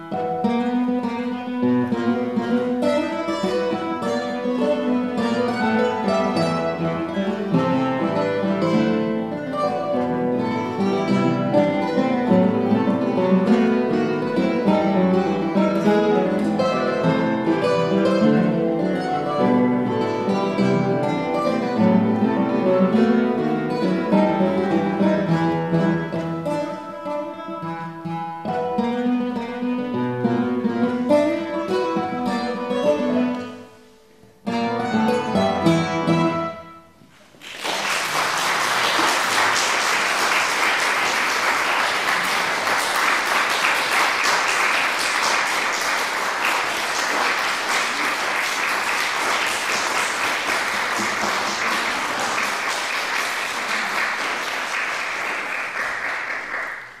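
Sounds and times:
classical guitars playing: 0.0 - 57.0
audience applause: 37.3 - 57.0.

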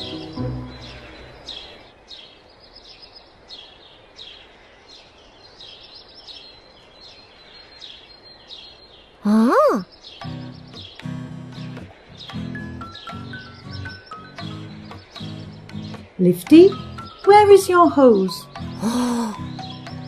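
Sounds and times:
music: 0.0 - 1.5, 10.2 - 20.0
cartoon bird chirps: 9.2 - 9.9.

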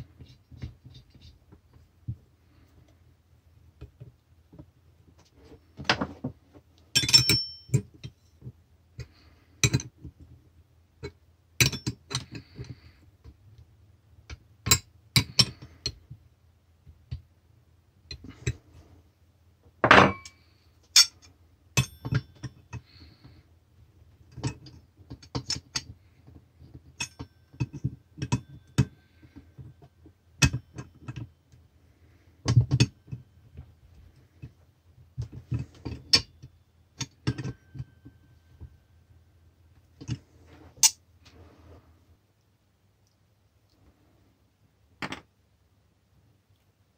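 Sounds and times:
faint low hum: 0.0 - 46.9
metal tools clinking: 6.9 - 8.2.

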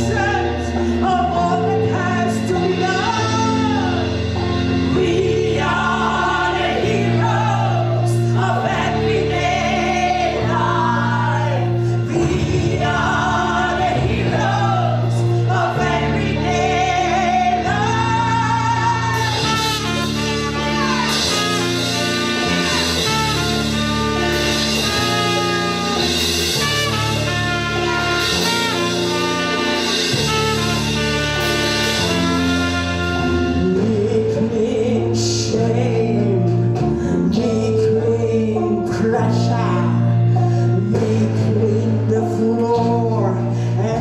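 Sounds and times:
electric bass guitar: 0.0 - 44.0
women singing: 4.8 - 20.0
trumpet playing: 16.6 - 34.3.

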